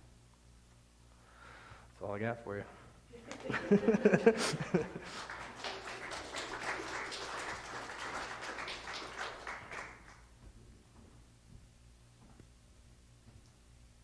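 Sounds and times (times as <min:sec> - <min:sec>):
congregation applauding: 0:03.3 - 0:10.3.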